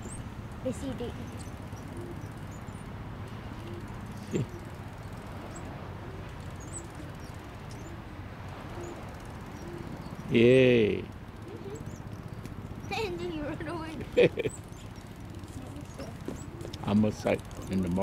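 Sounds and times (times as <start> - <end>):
high bird chirps: 0.8 - 5.7.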